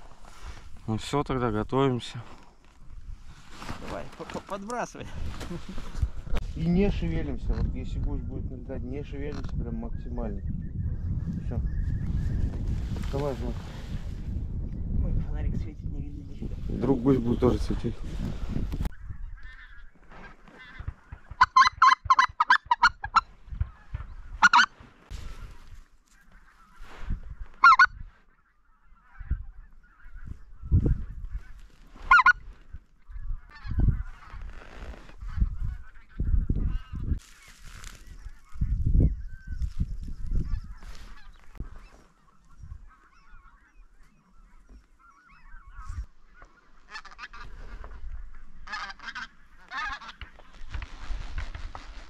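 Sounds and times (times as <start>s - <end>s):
geese honking: 19.4s - 24.7s, 27.6s - 30.5s, 31.4s - 32.4s, 40.4s - 50.8s.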